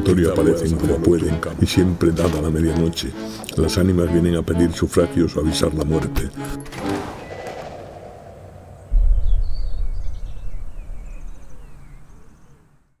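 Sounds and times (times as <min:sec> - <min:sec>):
small birds chirping: 0:07.2 - 0:13.0
deep low rumble: 0:08.8 - 0:12.6.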